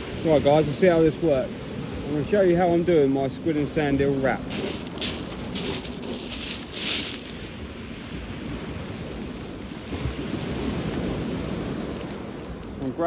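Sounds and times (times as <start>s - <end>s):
waves on a shingle beach: 0.0s - 13.0s
wind: 0.0s - 13.0s
plastic bags rustling: 4.5s - 7.6s.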